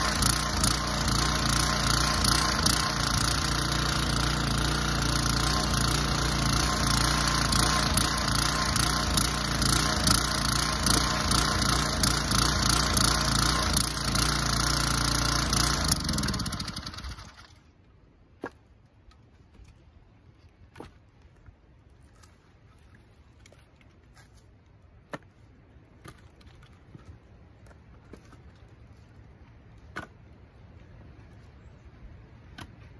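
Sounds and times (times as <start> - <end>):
gasoline engine running: 0.0 - 17.6.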